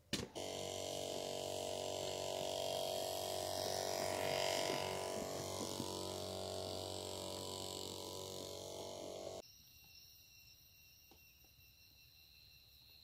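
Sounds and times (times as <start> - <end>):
sprayer pump motor humming: 0.2 - 9.4.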